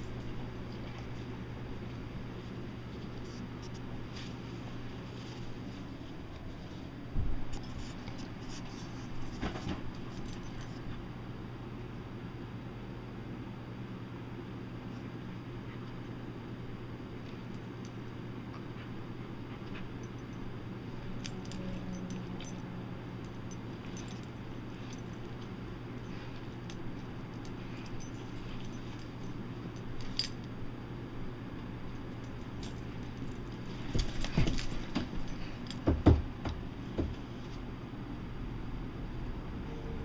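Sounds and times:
dog tags jingling: 19.7 - 30.5, 31.9 - 35.8.

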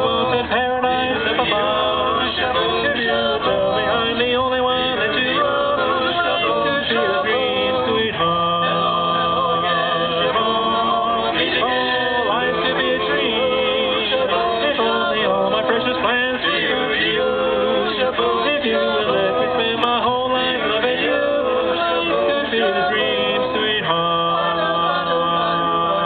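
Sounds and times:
male vocal quartet singing: 0.0 - 26.0.

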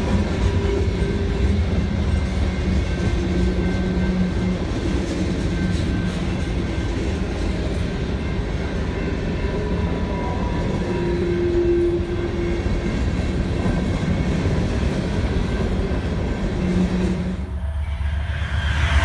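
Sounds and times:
freight train wheels rumbling on rails: 0.0 - 19.0.

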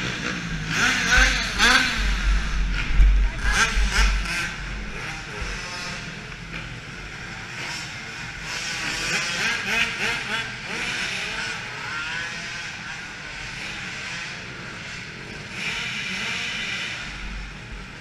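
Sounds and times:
low rumble: 0.0 - 6.9
quad engines revving: 0.0 - 18.0.

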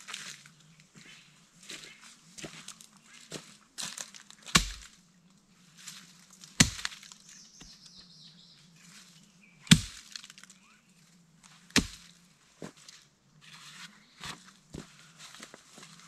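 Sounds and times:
dry leaves crackling: 0.0 - 5.0, 5.6 - 8.0, 8.8 - 10.6
blade chopping vegetation: 4.5 - 5.0, 6.5 - 7.2, 9.6 - 10.5, 11.7 - 12.1.

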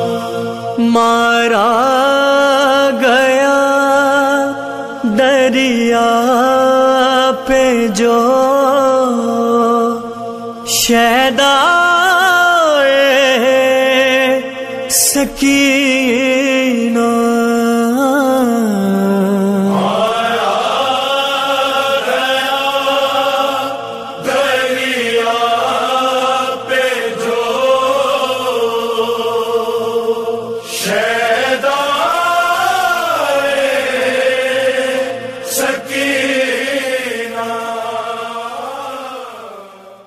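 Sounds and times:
man chanting a lament: 0.0 - 40.0.

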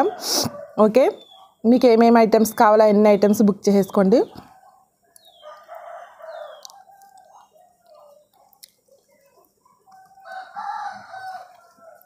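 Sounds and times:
chickens clucking: 4.2 - 12.0.

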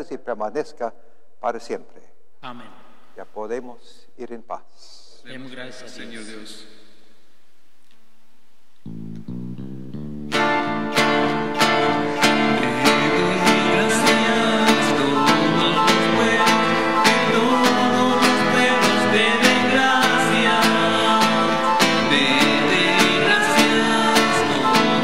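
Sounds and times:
acoustic guitar strumming chords: 8.9 - 25.0.

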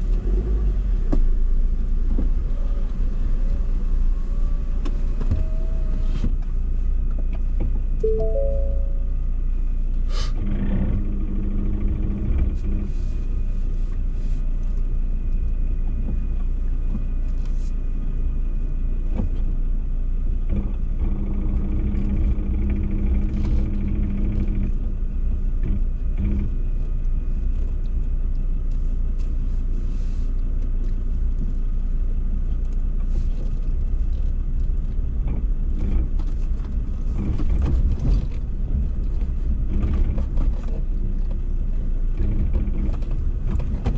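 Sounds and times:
engine and tyre rumble: 0.0 - 43.9
engine drone: 7.9 - 12.9
vehicle knocks and rattles: 33.5 - 43.9.

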